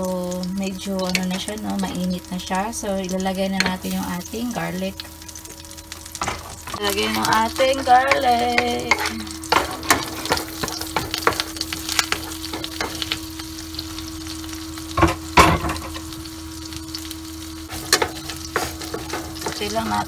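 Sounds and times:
garlic sizzling in butter: 0:00.0 - 0:20.0
steady low hum: 0:00.0 - 0:20.0
spatula scraping a pan: 0:17.7 - 0:19.9.

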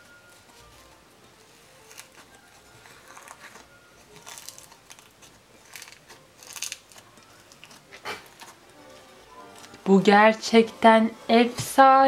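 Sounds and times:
slime squeezed crackling: 0:01.8 - 0:08.4.

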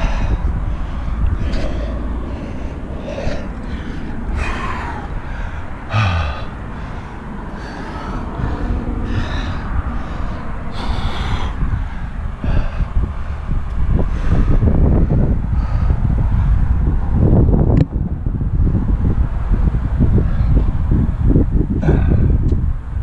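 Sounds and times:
person breathing heavily: 0:00.0 - 0:17.2, 0:21.7 - 0:22.5
wind rumble on microphone: 0:00.0 - 0:23.0.

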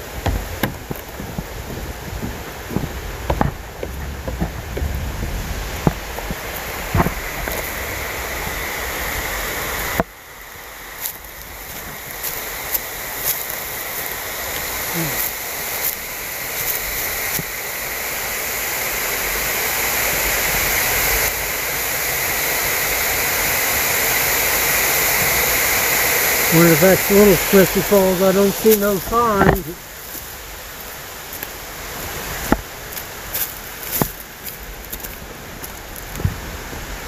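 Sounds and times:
wind rumble on microphone: 0:00.0 - 0:10.1, 0:35.2 - 0:37.0
waterfall rushing: 0:00.0 - 0:37.0.

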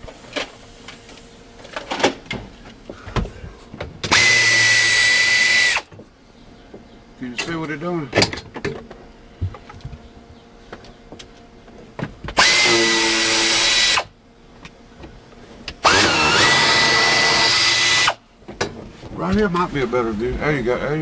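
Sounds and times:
power drill whining: 0:04.1 - 0:05.9, 0:12.4 - 0:14.1, 0:15.8 - 0:18.2.

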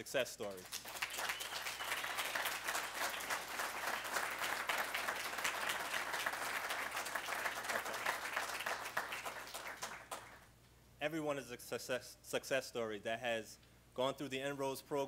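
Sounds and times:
audience applauding: 0:00.6 - 0:10.4.

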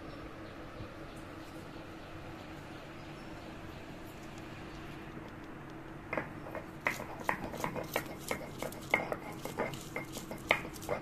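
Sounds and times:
stone roller crushing garlic: 0:06.0 - 0:11.0.

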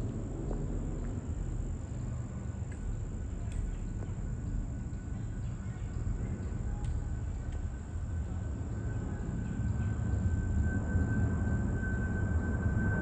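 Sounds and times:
faint clicks: 0:00.0 - 0:07.7
insects trilling: 0:00.0 - 0:13.0.

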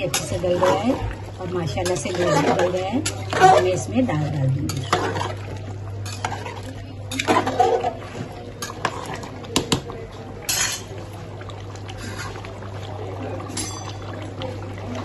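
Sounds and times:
metal ladle scraping pot: 0:00.0 - 0:09.7, 0:10.4 - 0:11.0.

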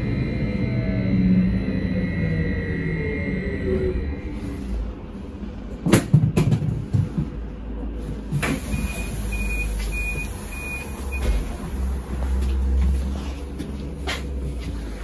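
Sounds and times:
trolleybus low hum: 0:00.0 - 0:15.0
high warning beeps: 0:08.7 - 0:11.3.

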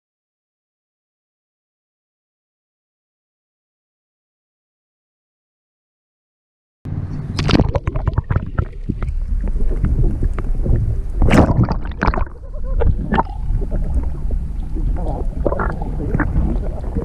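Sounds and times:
low underwater rumble: 0:06.9 - 0:17.0
underwater clicks and knocks: 0:07.2 - 0:17.0.

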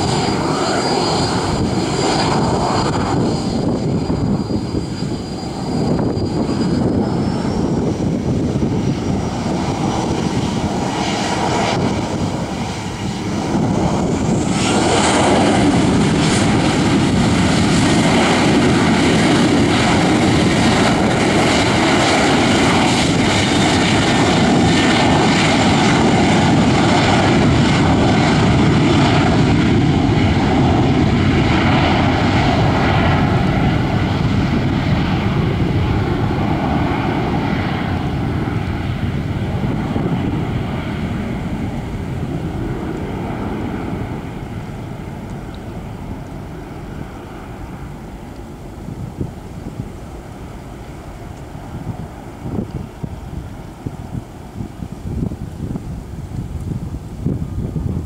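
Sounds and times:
jet engines spooling up: 0:00.0 - 0:58.0.

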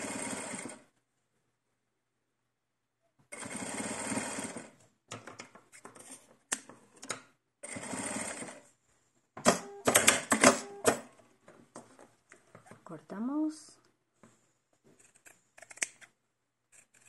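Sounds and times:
sewing machine stitching: 0:00.0 - 0:00.9, 0:03.3 - 0:04.8, 0:07.6 - 0:08.7.

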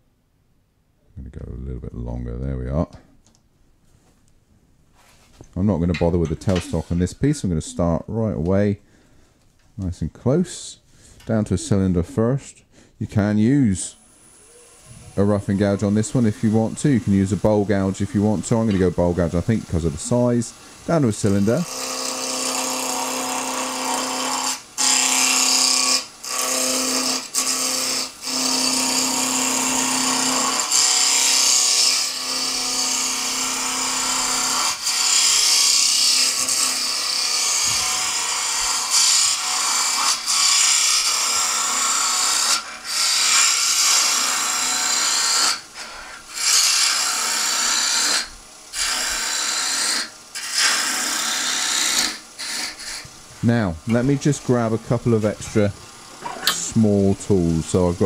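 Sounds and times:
wood lathe gouge cutting: 0:06.0 - 0:07.9, 0:13.9 - 0:53.1.

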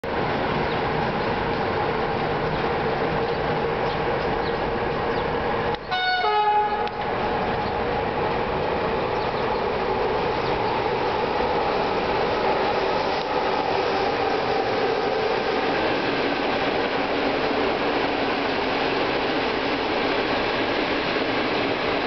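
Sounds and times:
electric locomotive humming: 0:00.0 - 0:22.0
two-tone locomotive horn: 0:05.9 - 0:07.1.

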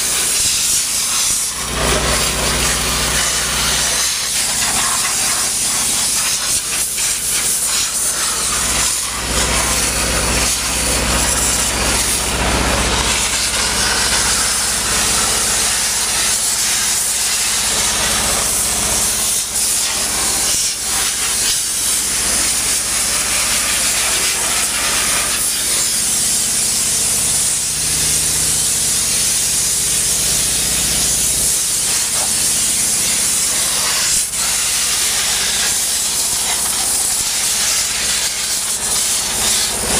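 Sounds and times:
compressed air hissing: 0:00.0 - 0:12.3, 0:13.0 - 0:26.8, 0:27.4 - 0:39.9.

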